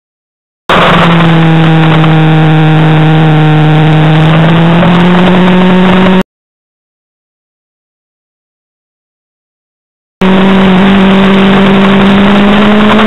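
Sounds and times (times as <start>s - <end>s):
motorcycle engine revving: 0.7s - 6.2s, 10.2s - 13.0s.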